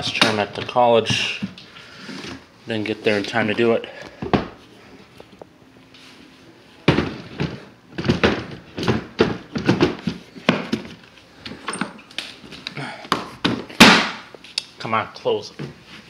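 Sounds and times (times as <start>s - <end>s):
plastic cases thunking and clacking: 6.8s - 12.0s, 13.1s - 14.2s.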